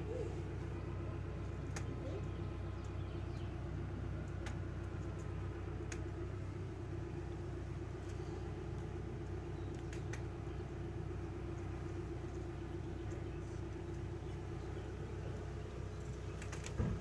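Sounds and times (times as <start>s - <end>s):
vehicle engine droning: 0.0s - 17.0s
faint clicks: 1.4s - 3.1s, 4.2s - 6.2s, 8.0s - 10.6s, 11.3s - 17.0s.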